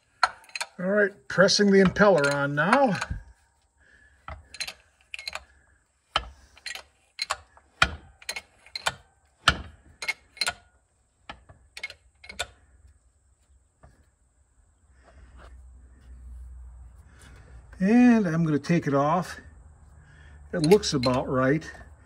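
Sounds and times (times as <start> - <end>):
press metallic clicks and clanks: 0.0 - 3.4, 4.2 - 12.8, 20.5 - 22.0.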